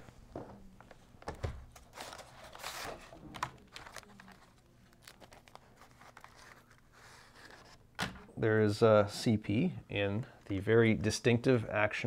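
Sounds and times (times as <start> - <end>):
plastic packaging crinkling: 1.7 - 7.9.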